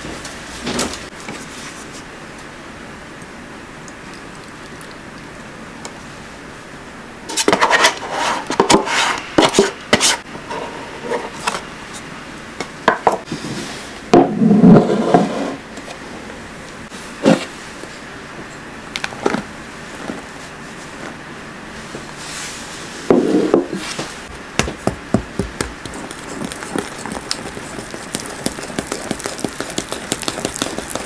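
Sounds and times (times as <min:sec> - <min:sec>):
utensil scraping yogurt carton: 0:25.4 - 0:31.0.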